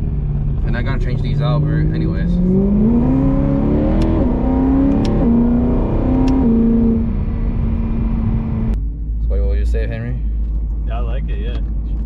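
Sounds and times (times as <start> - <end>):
sharp clicks: 6.2 - 6.4.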